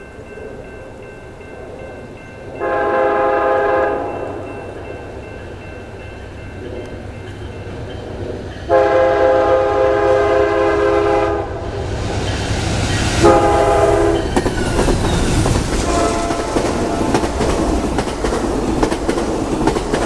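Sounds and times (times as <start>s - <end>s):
train rumbling: 0.0s - 20.0s
locomotive horn blasts: 2.6s - 4.2s, 8.7s - 11.6s, 13.2s - 14.2s, 15.8s - 16.7s.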